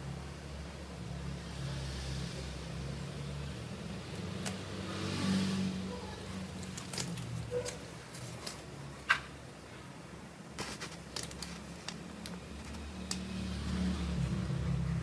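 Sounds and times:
light rustles of handling: 0:06.4 - 0:08.9, 0:10.5 - 0:12.8.

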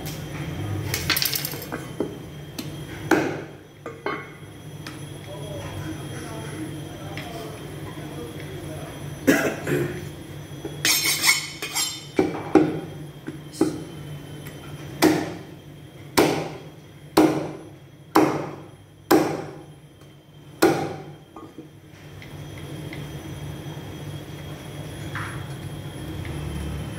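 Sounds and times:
cleaver chopping on wooden block: 0:16.2 - 0:16.6, 0:17.2 - 0:17.6, 0:18.2 - 0:18.5, 0:19.1 - 0:19.5, 0:20.6 - 0:20.9.

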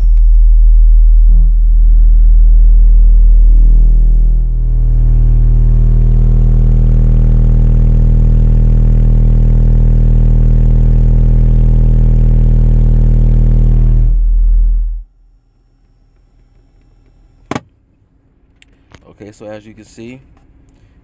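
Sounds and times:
subwoofer deep test tone drone: 0:00.0 - 0:15.1.

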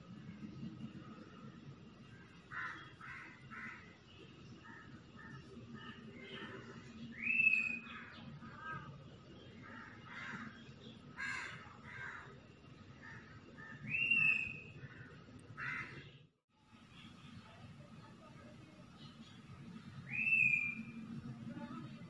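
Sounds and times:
birds harsh calls: 0:13.0 - 0:16.2, 0:19.0 - 0:21.0
low steady hum: 0:16.6 - 0:22.0
bird whistled notes: 0:20.1 - 0:21.0.

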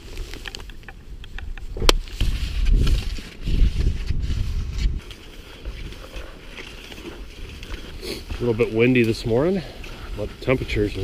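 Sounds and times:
wind rumble on microphone: 0:00.0 - 0:11.0
ski pole clicks: 0:00.1 - 0:03.0
skis scuffing on snow: 0:02.0 - 0:11.0.

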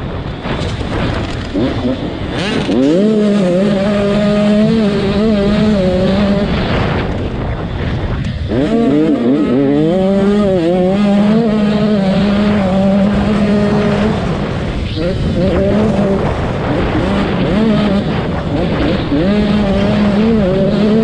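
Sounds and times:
motocross bike engine revving: 0:00.1 - 0:21.0.

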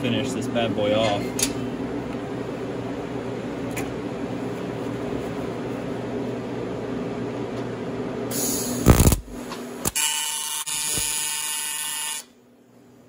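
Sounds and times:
fan hum: 0:00.0 - 0:10.0
welding arc hissing start: 0:08.3 - 0:12.3
welding arc buzzing: 0:08.3 - 0:12.4
arc crackle: 0:08.8 - 0:10.0.

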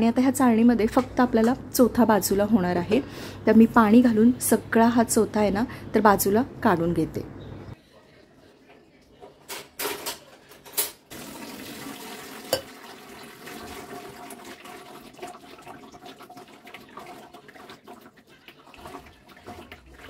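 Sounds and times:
water pouring through sieve: 0:11.1 - 0:20.0.

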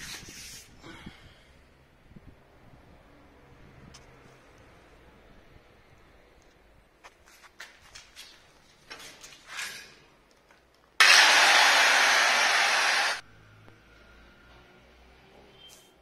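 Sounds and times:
angle grinder cutting stone: 0:11.0 - 0:13.2.

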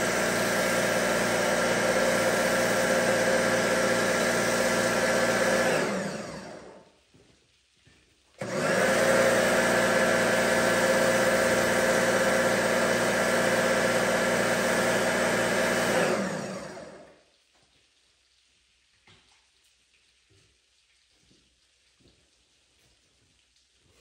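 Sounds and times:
pressure washer motor whirring: 0:00.0 - 0:06.8, 0:08.4 - 0:17.2
faint water drips: 0:06.8 - 0:08.4, 0:17.0 - 0:24.0.

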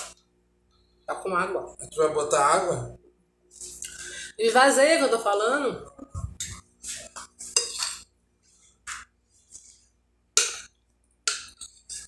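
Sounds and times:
metal spoon scraping glass bowl: 0:06.4 - 0:08.1, 0:11.3 - 0:12.0.

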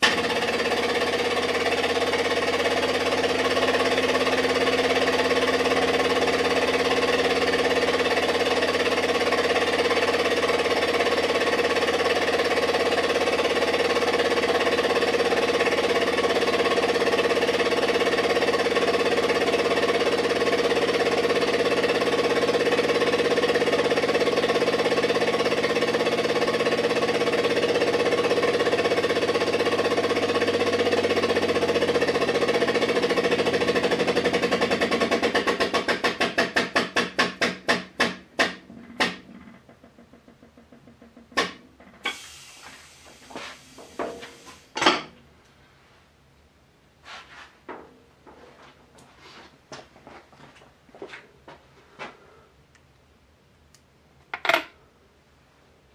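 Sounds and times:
hydraulic press pump running: 0:41.2 - 0:45.1.

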